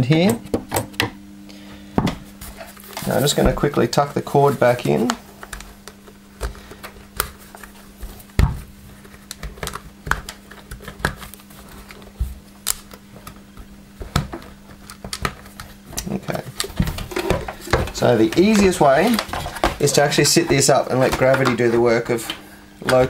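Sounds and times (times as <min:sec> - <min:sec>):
plastic parts clicking and knocking: 0:08.4 - 0:12.0, 0:12.6 - 0:23.0.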